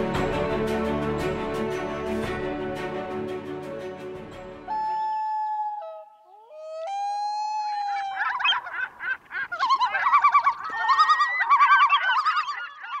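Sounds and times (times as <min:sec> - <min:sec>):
chorus of honking bird calls: 0:07.7 - 0:13.0.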